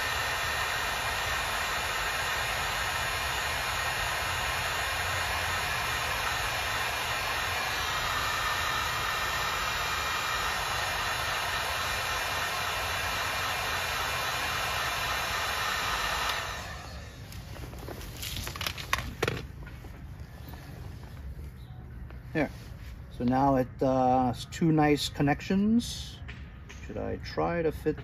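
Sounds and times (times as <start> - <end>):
heat gun blowing: 0.0 - 19.5.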